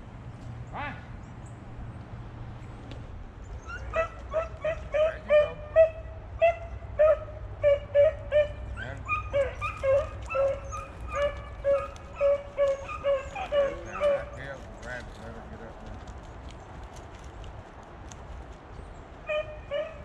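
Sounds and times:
dog yipping in high cries: 3.6s - 14.4s, 19.3s - 20.0s.

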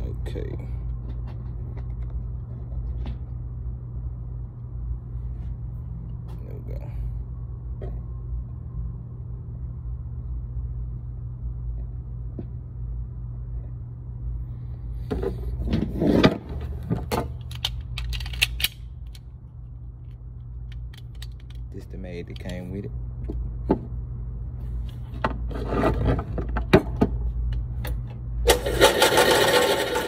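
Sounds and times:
steady low hum: 0.0s - 30.0s
metallic clicks of pistol handling: 17.4s - 19.3s, 20.0s - 21.7s.

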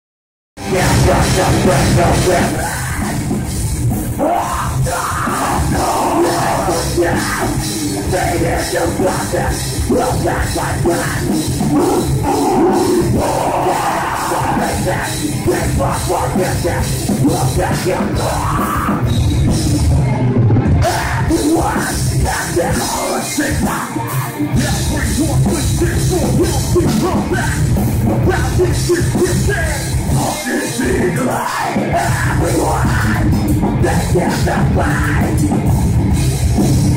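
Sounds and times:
heavy metal band playing live: 0.6s - 36.9s
vocalist shouting into microphone: 10.9s - 15.0s.

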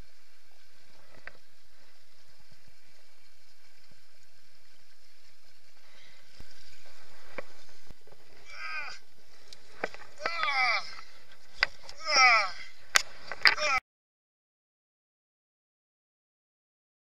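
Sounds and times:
steady hiss: 0.0s - 13.6s.

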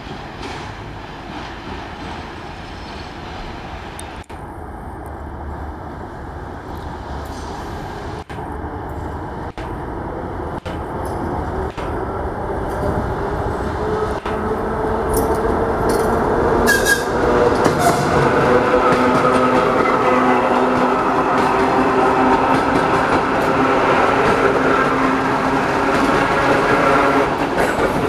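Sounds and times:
train rail noise: 0.0s - 28.0s
wheel squeal: 16.6s - 17.2s.

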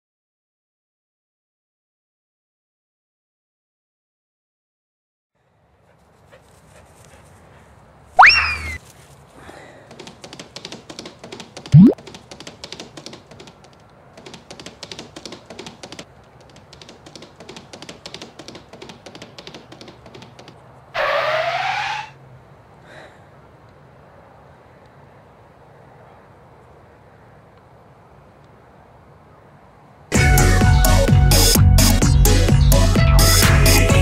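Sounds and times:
upward pitch slide: 8.2s - 8.8s, 11.8s - 12.0s
rapid clicks: 9.9s - 20.6s.

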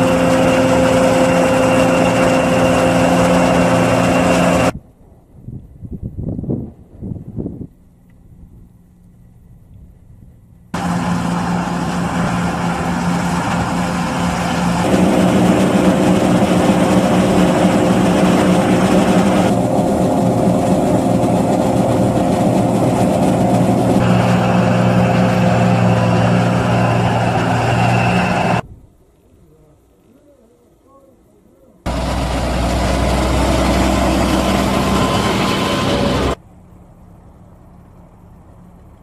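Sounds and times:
diesel engines running: 0.0s - 4.8s, 10.8s - 28.6s, 31.9s - 39.0s.

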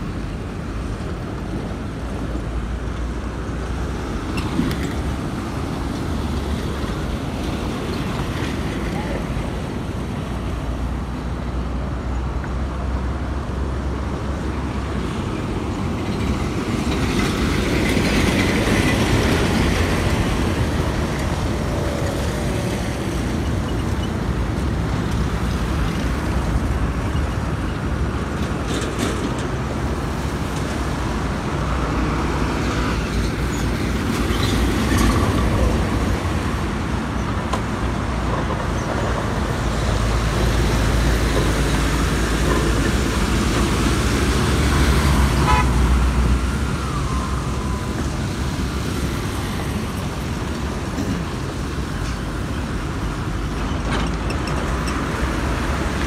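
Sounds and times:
trucks and cars driving: 0.0s - 56.0s
vehicle horn toot: 45.4s - 45.8s.

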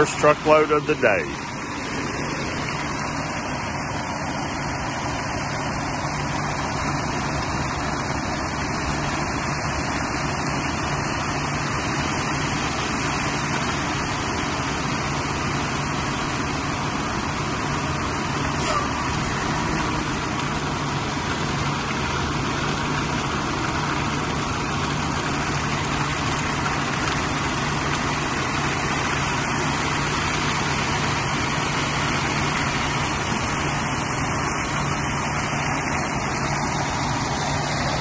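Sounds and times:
diesel engine humming: 0.0s - 38.0s
wet concrete sliding down chute: 11.5s - 38.0s.

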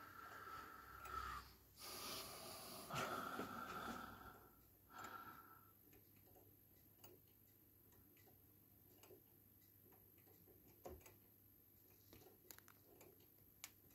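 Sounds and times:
wall clock ticking: 3.0s - 13.9s.

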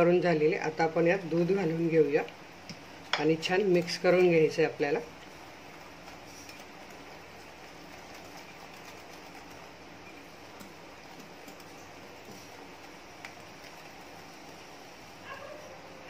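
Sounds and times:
whisk clicking: 6.0s - 14.3s
whisk scraping glass bowl: 6.0s - 14.5s.

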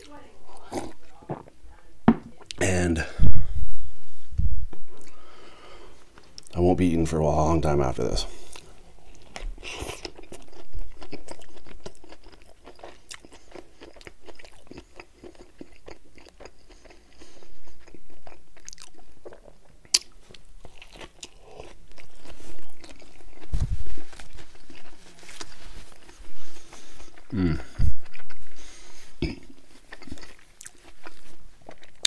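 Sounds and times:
close biting and chewing: 8.4s - 32.0s.

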